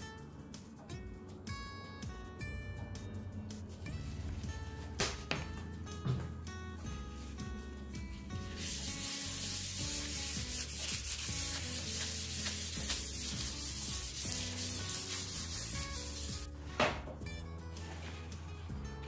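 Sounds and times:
paper towel rubbing on parchment: 8.4s - 16.5s.

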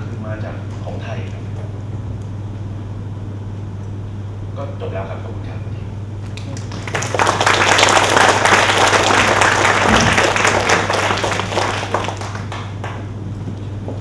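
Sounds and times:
audience applauding: 6.3s - 13.2s.

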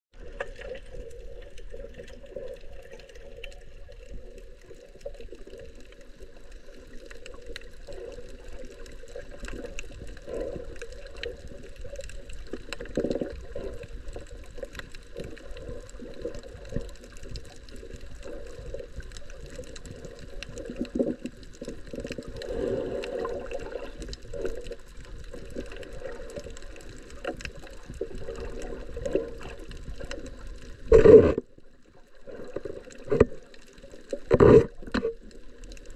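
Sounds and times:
faint underwater clicks and crackles: 0.1s - 35.9s
underwater water sloshing: 0.2s - 35.9s
water surges: 0.2s - 35.9s.

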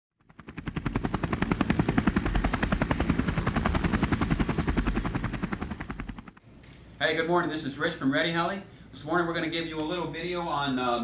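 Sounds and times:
helicopter rotor blades chopping: 0.2s - 6.4s.

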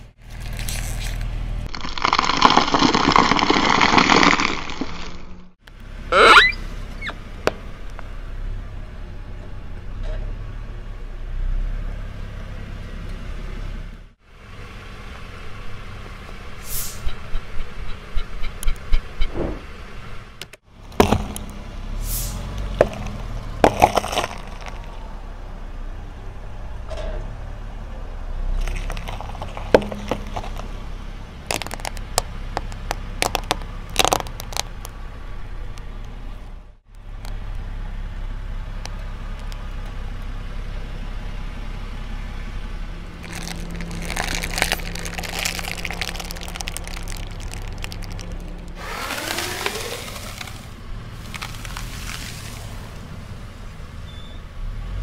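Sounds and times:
objects cracking under tyre: 0.0s - 8.1s, 20.4s - 21.7s, 22.4s - 25.0s, 28.5s - 36.4s, 43.2s - 53.1s
car low rumble: 0.0s - 55.0s
plastic sachets crackling: 31.5s - 34.6s, 43.2s - 52.8s.

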